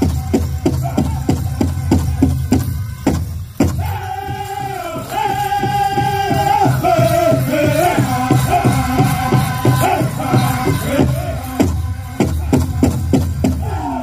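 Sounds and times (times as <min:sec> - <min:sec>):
group singing high melody: 0:00.0 - 0:14.0
large drum steady beat: 0:00.0 - 0:14.0.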